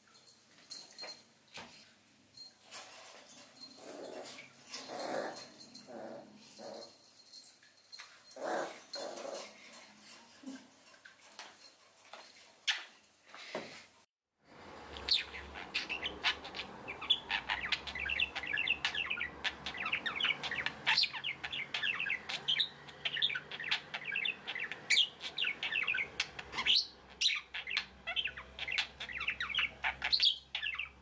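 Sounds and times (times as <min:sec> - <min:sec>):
budgerigar chattering and warbling: 0:15.1 - 0:31.0.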